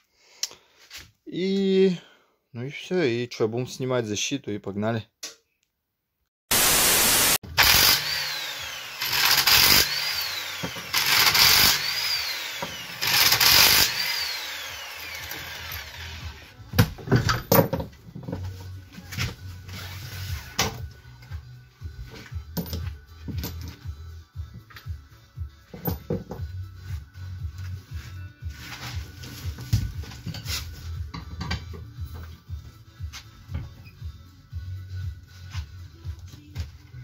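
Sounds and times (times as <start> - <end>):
impact wrench spinning: 7.6 - 16.5
nuts and tools clattering on floor: 17.1 - 18.5, 22.5 - 23.9, 25.7 - 26.5.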